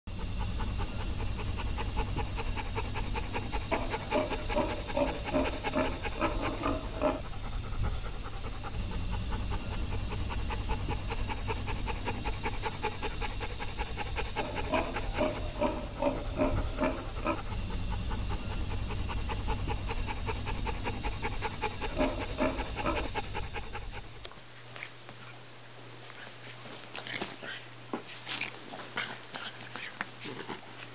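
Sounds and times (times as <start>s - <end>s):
dog panting fast: 0.1s - 24.3s.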